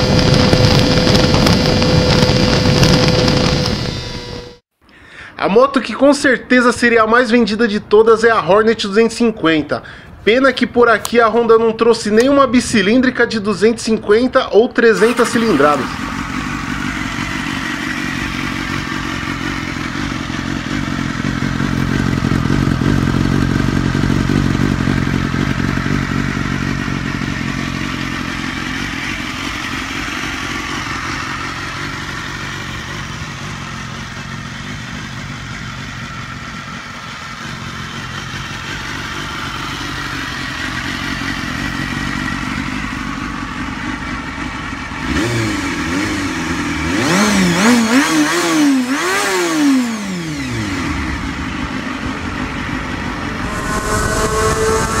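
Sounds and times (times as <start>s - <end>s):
motorcycle engine idling: 15.0s - 47.0s, 49.9s - 55.0s.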